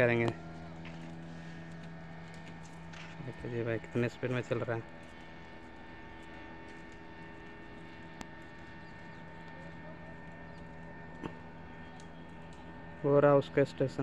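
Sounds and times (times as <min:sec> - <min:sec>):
distant speedboat engine droning: 0:00.0 - 0:14.0
small clicks: 0:10.6 - 0:12.7.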